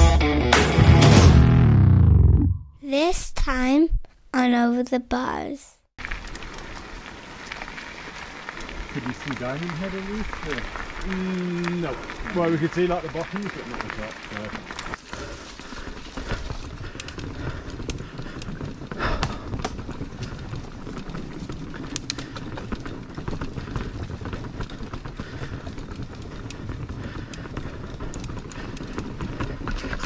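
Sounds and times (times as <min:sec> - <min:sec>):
bike rattling: 0:06.0 - 0:30.0
bike tyres clattering over planks: 0:06.0 - 0:30.0.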